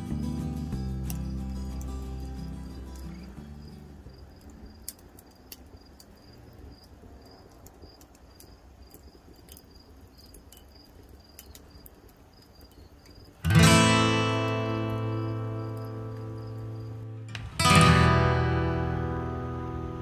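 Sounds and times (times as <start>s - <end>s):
background music: 0.0s - 3.7s
cricket chirping: 0.0s - 20.0s
faint clicks: 6.8s - 13.2s.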